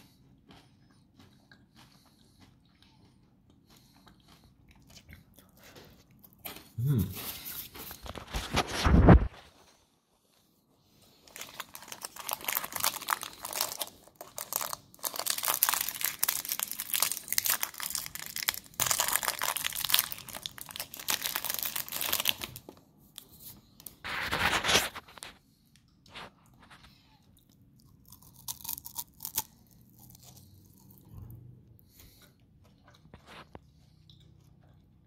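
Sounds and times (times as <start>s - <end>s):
candy wrapper crackling: 11.2s - 22.8s
wrapper rustle: 11.3s - 22.6s.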